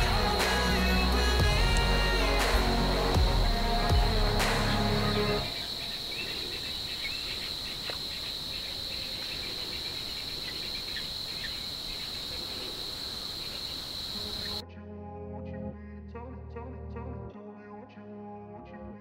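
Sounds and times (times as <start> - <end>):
background music: 0.0 - 5.8, 14.2 - 19.0
high-pitched insect chorus: 0.0 - 14.6.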